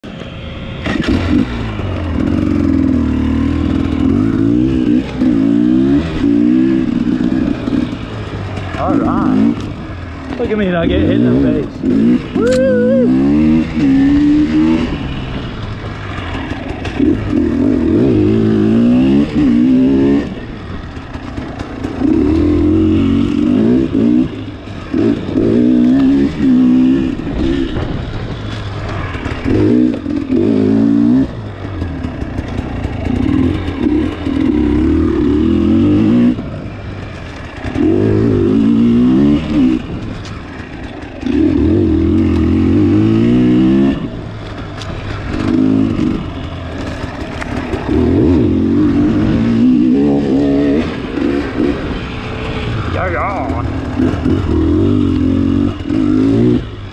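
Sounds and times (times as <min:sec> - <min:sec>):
dirt bike engine revving: 0:00.8 - 0:56.9.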